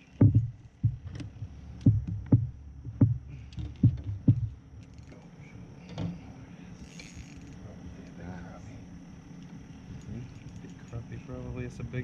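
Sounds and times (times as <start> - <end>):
dull thumps in a boat: 0.2 - 4.5.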